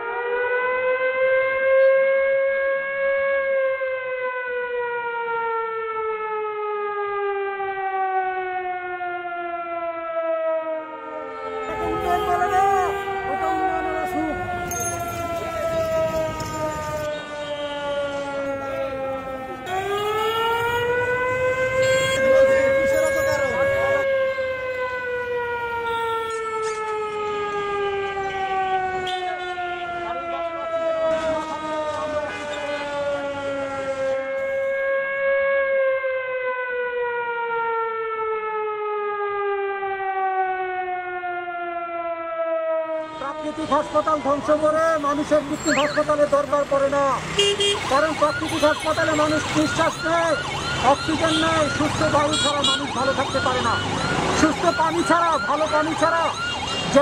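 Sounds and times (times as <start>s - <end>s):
siren wailing: 0.0s - 57.0s
low rumble of street noise: 10.7s - 34.3s.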